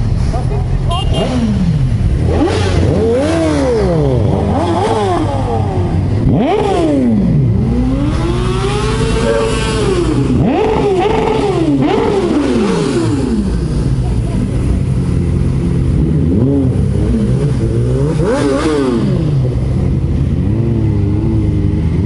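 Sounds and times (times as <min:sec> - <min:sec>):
wind and road noise: 0:00.0 - 0:22.0
motorcycle engine revving: 0:01.1 - 0:22.0.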